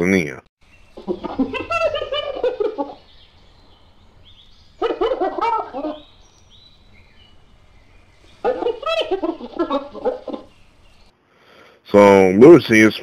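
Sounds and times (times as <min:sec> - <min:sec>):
hyena laughing: 0:00.9 - 0:11.0.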